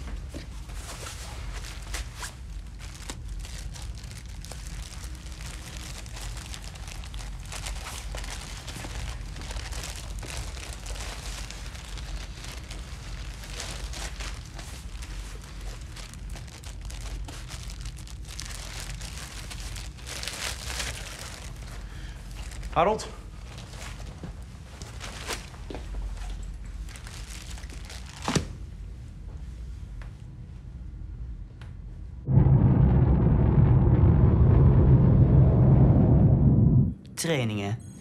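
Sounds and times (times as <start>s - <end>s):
paper crinkling and rustling: 0.0s - 22.8s, 23.4s - 28.5s
low steady hum: 0.0s - 38.0s.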